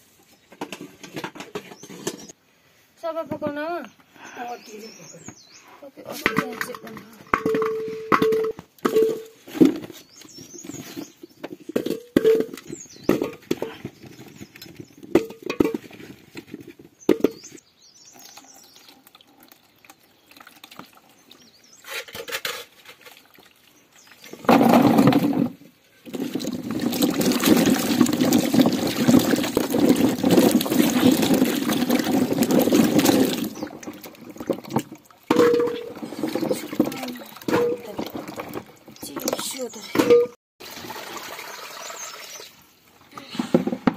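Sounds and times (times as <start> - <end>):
water pouring and splashing: 18.0 - 42.6
potatoes washed in water: 18.1 - 42.6.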